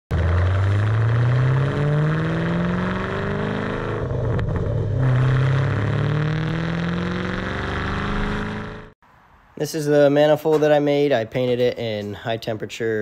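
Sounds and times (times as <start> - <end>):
car engine accelerating hard: 0.1 - 9.0.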